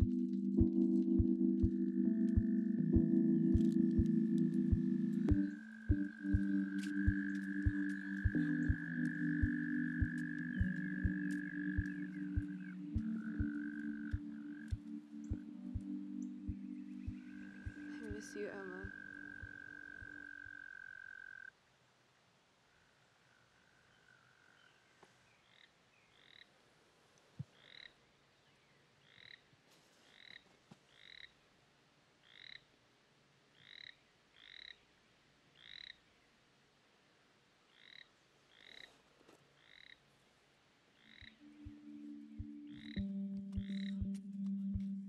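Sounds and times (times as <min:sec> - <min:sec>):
low held chord: 0:00.0 - 0:20.3, 0:41.3 - 0:45.0
frog peeping: 0:04.8 - 0:21.5, 0:35.6 - 0:36.0, 0:37.8 - 0:38.9, 0:39.6 - 0:40.0, 0:41.0 - 0:44.2.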